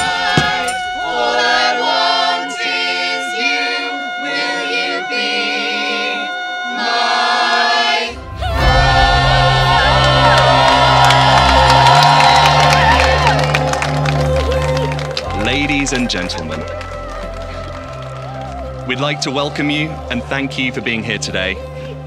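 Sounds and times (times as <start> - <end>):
people singing a cappella: 0.0 - 11.6
steady low bass: 8.2 - 22.0.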